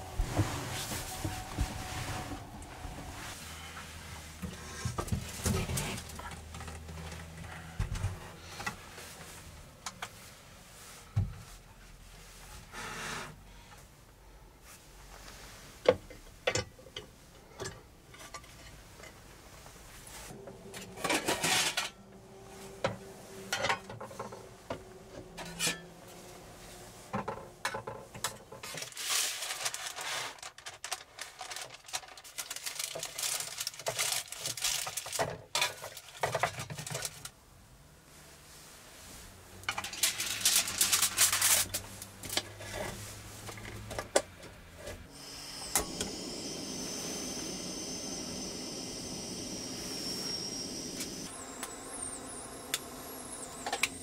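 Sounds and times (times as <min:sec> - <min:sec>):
scraping and rustling: 0:00.0 - 0:13.3, 0:18.2 - 0:37.4, 0:38.2 - 0:43.9.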